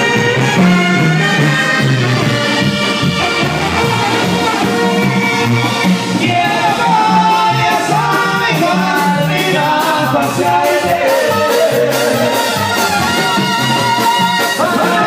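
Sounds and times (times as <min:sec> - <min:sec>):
bass beat: 0:00.0 - 0:15.0
brass band playing: 0:00.0 - 0:15.0
person singing: 0:06.2 - 0:15.0.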